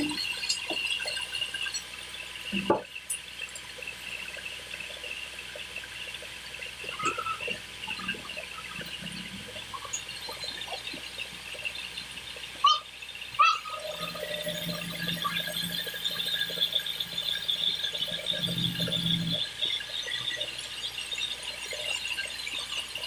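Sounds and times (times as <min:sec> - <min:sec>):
band sawmill whining: 0:06.8 - 0:23.0.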